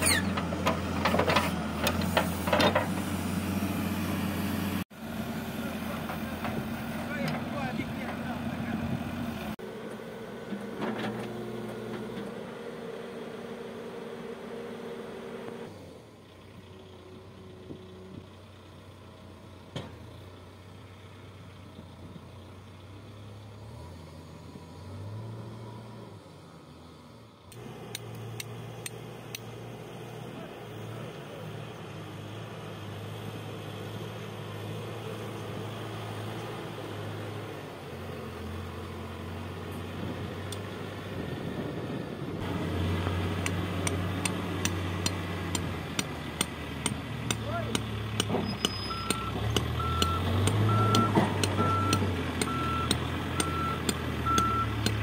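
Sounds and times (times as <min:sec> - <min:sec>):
diesel engine running under load: 0:00.0 - 0:55.0
reversing alarm beeping: 0:48.5 - 0:54.9.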